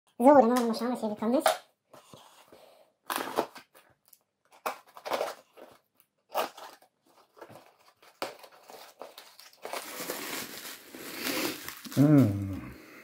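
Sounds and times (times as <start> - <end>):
bubble wrap crinkling: 4.8 - 12.7
knife slitting packing tape: 6.3 - 6.9.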